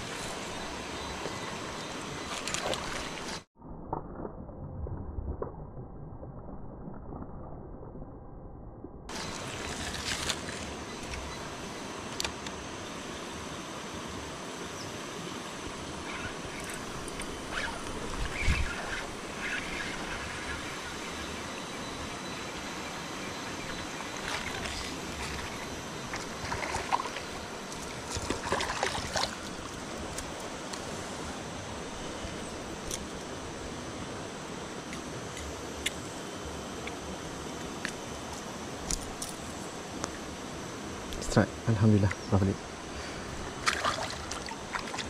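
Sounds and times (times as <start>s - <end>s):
river water flowing: 0.0s - 3.5s, 9.1s - 41.8s, 42.6s - 45.0s
short knocks and splashes: 28.0s - 29.4s.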